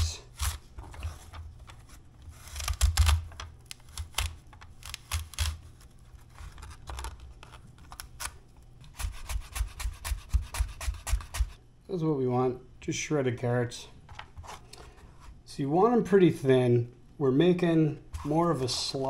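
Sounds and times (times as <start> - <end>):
carrots scraping on slicer blade: 0.0 - 0.7.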